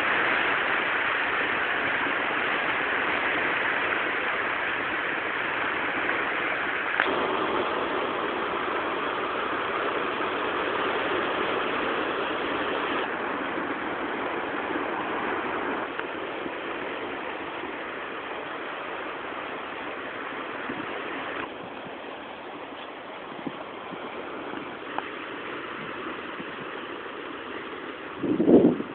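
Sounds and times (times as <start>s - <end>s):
surf washing over rocky shore: 0.0s - 28.9s.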